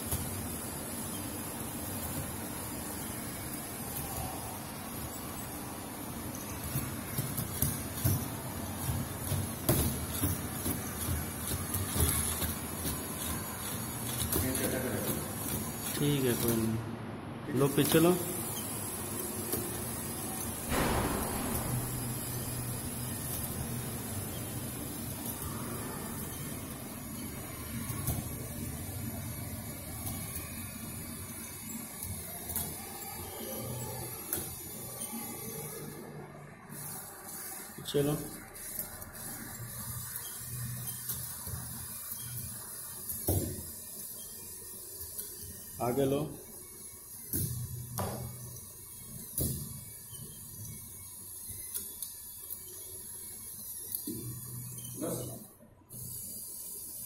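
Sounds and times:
toy train motor whirring: 8.8 - 16.5, 38.5 - 55.2.

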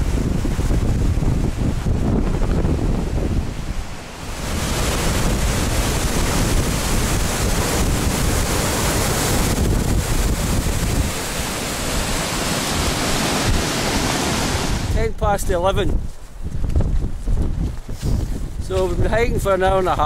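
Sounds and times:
river rushing: 0.0 - 15.1
wind buffeting microphone: 0.0 - 20.0.

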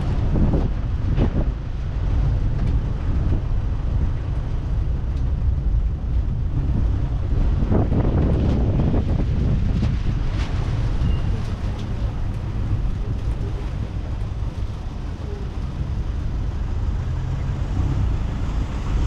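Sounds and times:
shuttle tram rumbling: 0.0 - 19.0
wind buffeting microphone: 0.0 - 19.0.

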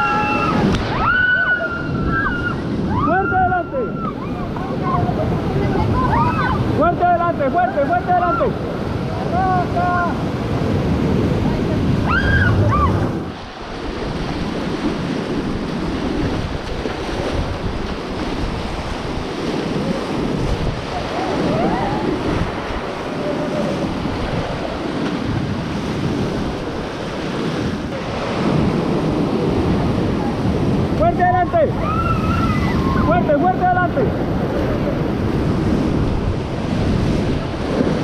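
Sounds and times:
whitewater rapids rushing: 0.0 - 38.0
wind buffeting microphone: 0.0 - 38.0.

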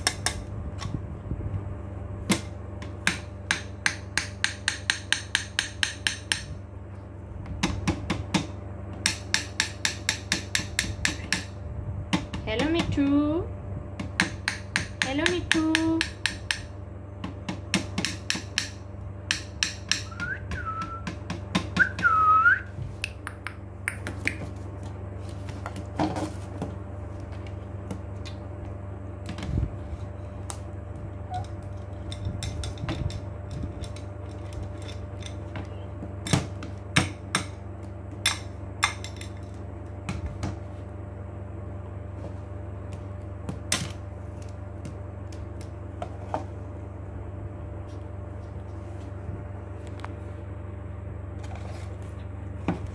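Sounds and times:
parrot whistles: 20.1 - 21.0, 21.8 - 22.7.

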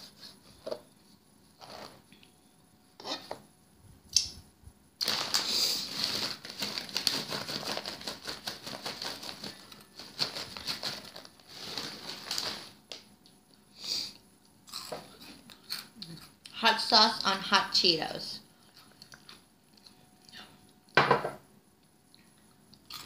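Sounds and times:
plastic snack bag crinkling: 5.0 - 13.0.

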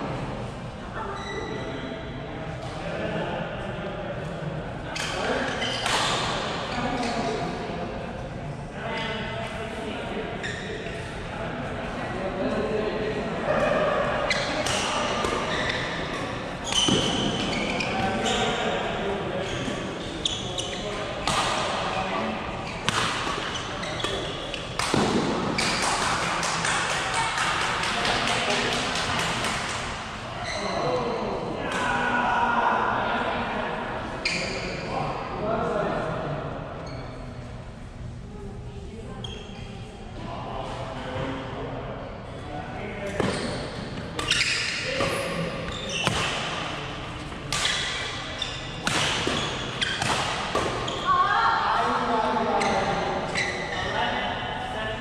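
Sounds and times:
background chatter: 0.0 - 55.0
shoes squeaking on court: 14.3 - 18.7, 19.4 - 22.0, 22.6 - 25.0, 43.2 - 51.1, 52.6 - 54.0
racket hitting shuttlecock: 14.6 - 16.0, 22.8 - 27.9, 45.9 - 46.7, 47.5 - 48.1, 48.8 - 50.9.

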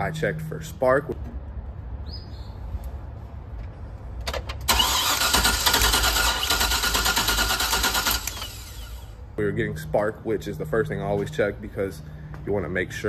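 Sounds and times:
engine cranking on starter: 4.3 - 9.2.

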